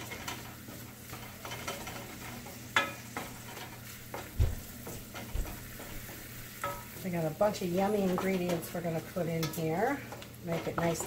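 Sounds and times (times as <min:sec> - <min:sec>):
butter sizzling: 0:00.0 - 0:11.0
spatula scraping a skillet: 0:00.0 - 0:11.0
spatula knocking on pan: 0:02.5 - 0:07.2.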